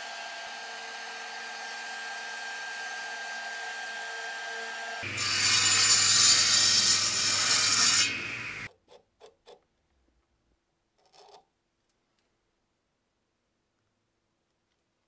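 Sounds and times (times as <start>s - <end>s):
table saw cutting wood: 0.0s - 8.7s.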